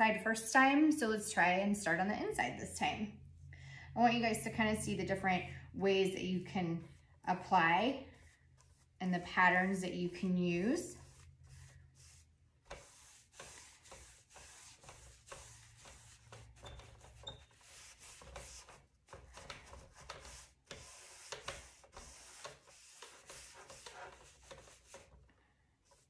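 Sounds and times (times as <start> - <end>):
paintbrush swishing on wood: 6.8 - 25.2.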